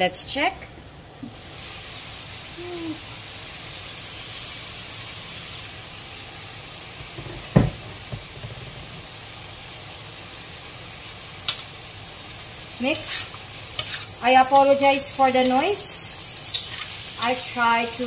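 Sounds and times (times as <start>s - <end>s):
food sizzling in a wok: 0.2s - 18.0s
sharp knock on wok: 7.0s - 8.9s.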